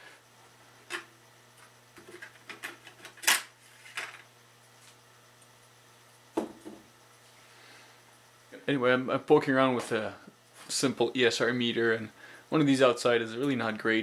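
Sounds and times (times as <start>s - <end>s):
cover knocking on bench: 6.4s - 6.8s.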